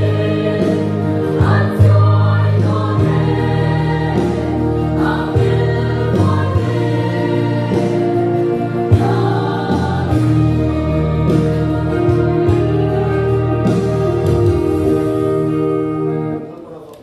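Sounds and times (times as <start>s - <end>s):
mixed choir singing a hymn: 0.0s - 16.9s.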